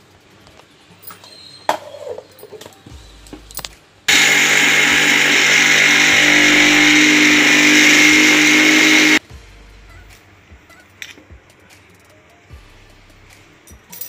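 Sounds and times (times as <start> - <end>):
mixer grinder motor grinding: 4.1 - 9.2.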